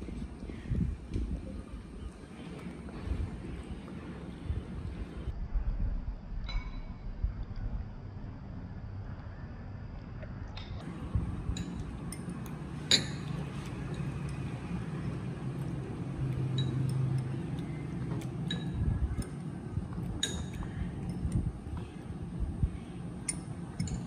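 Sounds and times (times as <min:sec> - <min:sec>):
low steady hum: 0:00.0 - 0:24.0
dishes clinking: 0:11.4 - 0:14.4, 0:16.4 - 0:17.8, 0:18.4 - 0:19.4, 0:20.1 - 0:21.3.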